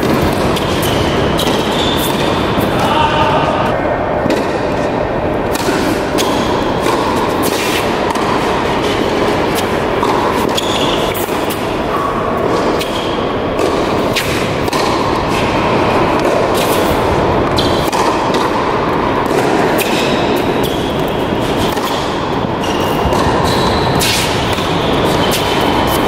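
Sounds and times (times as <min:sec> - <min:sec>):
shoes squeaking on court: 0:00.0 - 0:02.8, 0:06.1 - 0:15.8, 0:19.3 - 0:26.0
ball bouncing on court: 0:00.0 - 0:03.4, 0:05.5 - 0:26.0
racket striking ball: 0:00.0 - 0:03.4, 0:04.2 - 0:26.0
steady background noise: 0:00.0 - 0:26.0.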